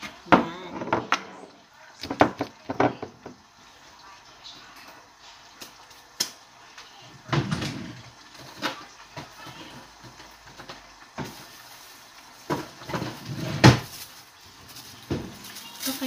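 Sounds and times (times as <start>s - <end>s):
kitchen cupboard knocks and clatter: 0.3s - 1.3s, 2.1s - 3.4s, 7.3s - 8.0s, 12.5s - 13.9s, 15.0s - 15.4s.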